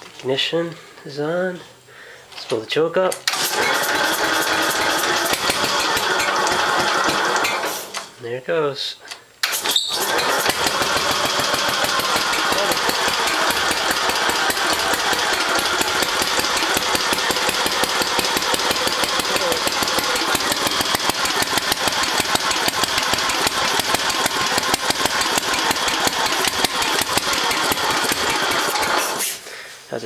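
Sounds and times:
person talking: 0:00.2 - 0:01.7, 0:08.2 - 0:09.1, 0:12.4 - 0:12.9, 0:19.2 - 0:19.9
small engine running: 0:03.3 - 0:08.1, 0:09.5 - 0:29.4.

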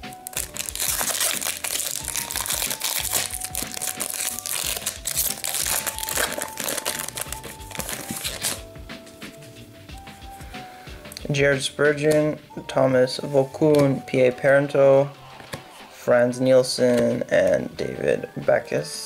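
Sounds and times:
quiet background music: 0:00.0 - 0:19.0
foil wrapper crinkling: 0:00.1 - 0:08.6.

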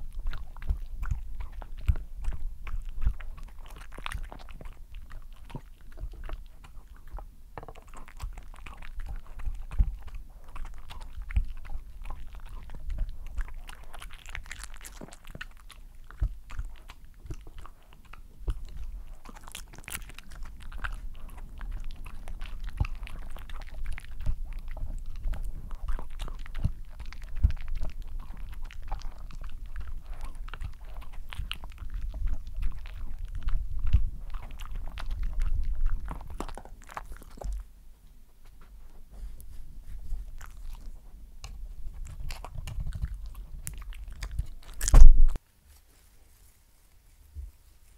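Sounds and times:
dog chewing and licking: 0:00.0 - 0:45.4.

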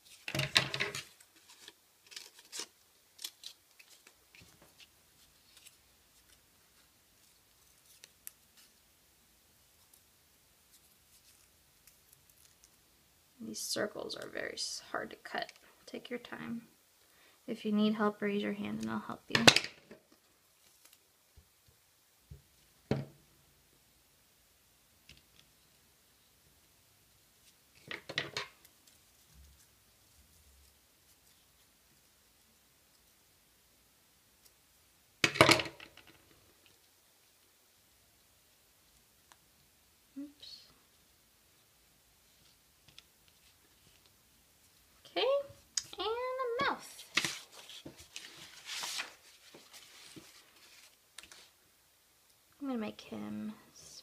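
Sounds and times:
paper rustling: 0:00.0 - 0:08.8, 0:46.9 - 0:51.6
scissors snipping paper: 0:01.6 - 0:04.1.

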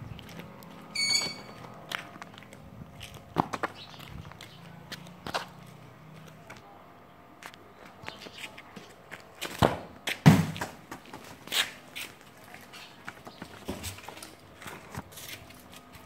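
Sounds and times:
footsteps: 0:00.0 - 0:06.6, 0:07.4 - 0:16.0
knocks and scuffs on concrete: 0:00.1 - 0:06.6, 0:07.4 - 0:16.0.

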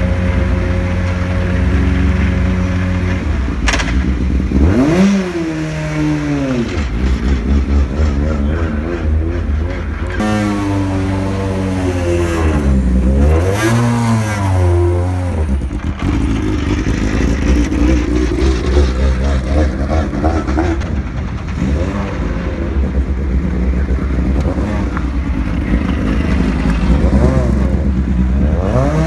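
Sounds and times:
racing car engines revving: 0:00.0 - 0:29.0.

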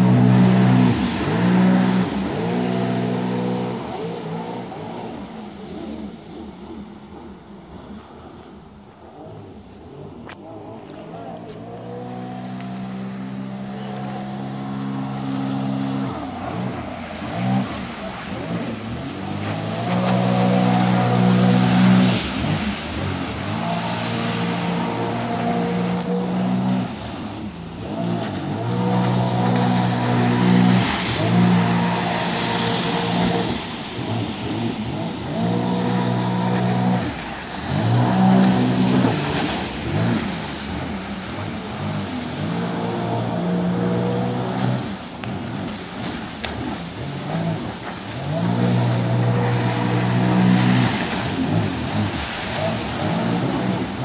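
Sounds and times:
jet ski engine revving: 0:00.0 - 0:54.0
water spray hissing: 0:14.3 - 0:44.8.

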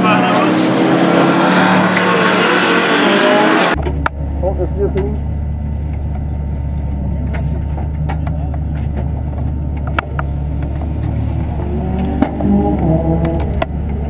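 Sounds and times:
race car engines idling: 0:03.7 - 0:14.0.

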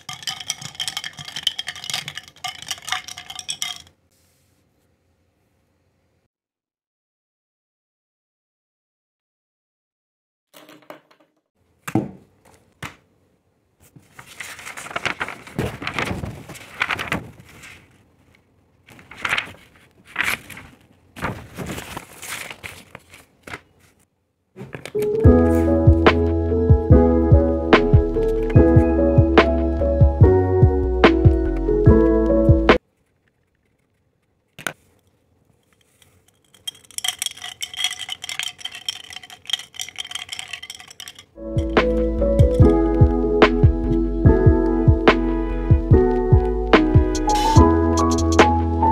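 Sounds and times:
ice cubes clinking in glass: 0:00.0 - 0:04.0, 0:35.8 - 0:42.0
paper sheets rustling: 0:13.8 - 0:25.7.

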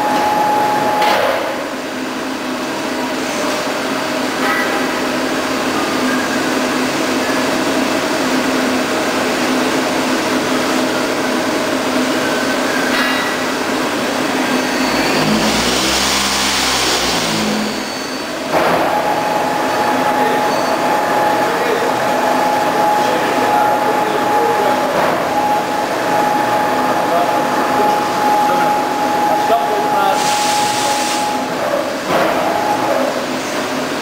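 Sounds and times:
machine hum with whining tones: 0:00.0 - 0:34.0
machine rushing noise: 0:13.9 - 0:18.7.

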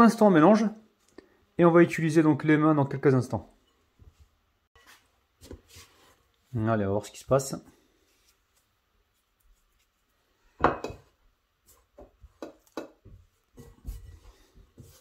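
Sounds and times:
hands kneading dough in bowl: 0:04.8 - 0:10.2, 0:11.5 - 0:15.0.

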